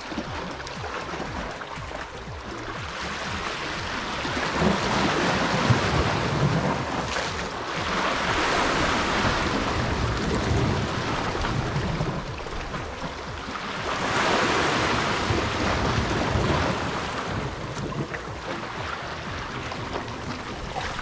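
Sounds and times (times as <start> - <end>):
sea waves washing over rocks: 0.0 - 21.0
wind buffeting microphone: 2.2 - 21.0.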